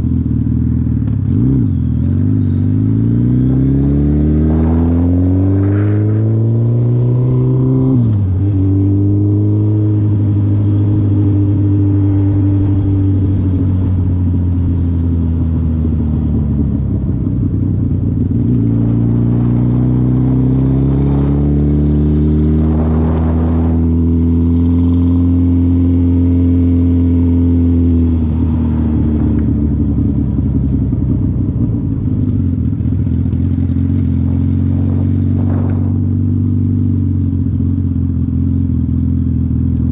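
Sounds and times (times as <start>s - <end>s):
motorcycle engine riding: 0.0s - 39.9s.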